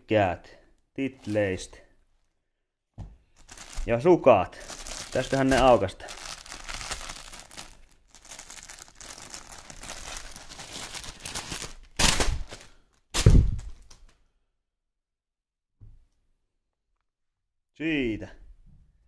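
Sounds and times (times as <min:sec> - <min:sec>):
plastic packaging crinkling: 0:03.2 - 0:14.1.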